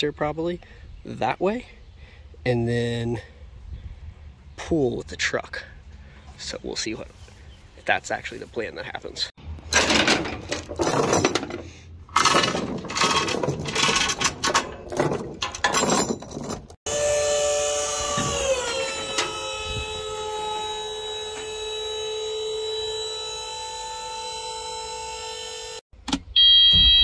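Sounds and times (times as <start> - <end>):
chains rattling against metal: 9.7 - 16.8
machine drone with whining tones: 16.9 - 25.8.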